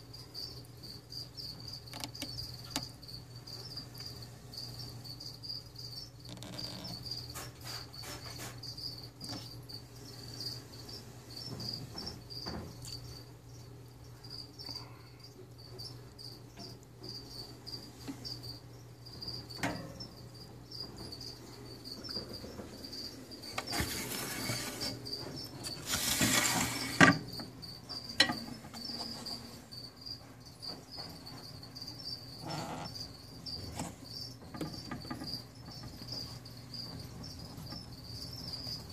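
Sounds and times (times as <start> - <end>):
cricket chirping: 0.0 - 38.9.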